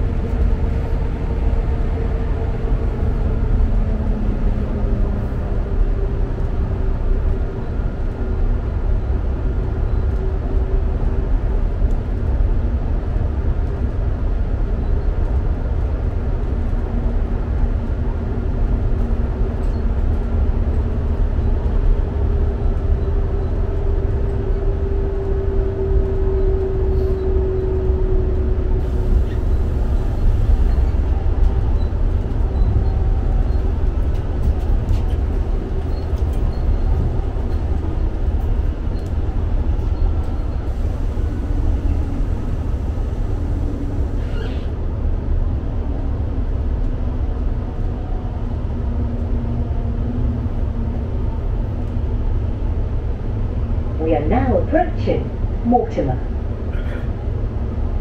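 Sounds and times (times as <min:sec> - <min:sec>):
train wheels rumbling on rail: 0:00.0 - 0:58.0
brief high squeak: 0:44.2 - 0:44.8.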